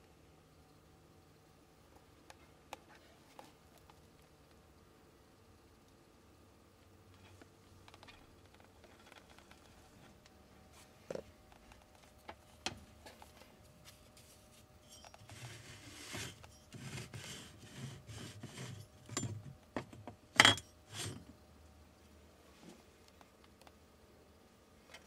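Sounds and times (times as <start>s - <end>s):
metal rubbing and scraping: 14.2s - 19.5s.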